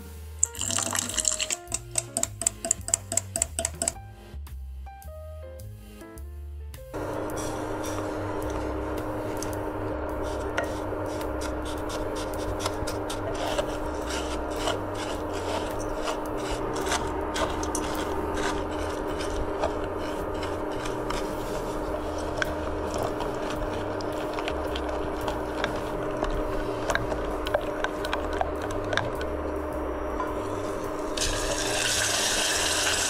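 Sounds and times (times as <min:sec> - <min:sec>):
spatula clicking against pan: 0:01.3 - 0:04.0
spatula scraping sugar in a pan: 0:07.0 - 0:29.1
steady hum: 0:07.0 - 0:33.0.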